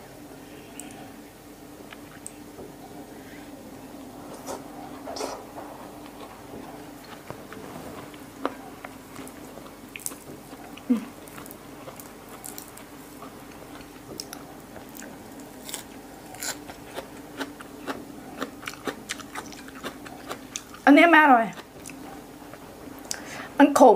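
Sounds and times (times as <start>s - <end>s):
faint steady hum: 0.0s - 23.9s
chewing with wet mouth clicks: 6.0s - 20.8s, 21.5s - 23.2s
leafy greens crunching: 6.0s - 20.8s.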